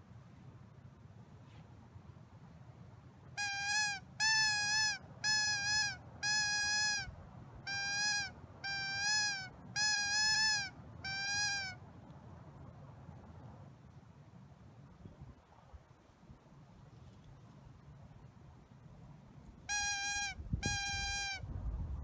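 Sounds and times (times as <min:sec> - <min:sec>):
high-pitched squealing call notes: 0:03.4 - 0:07.1, 0:07.7 - 0:11.8, 0:19.7 - 0:21.4.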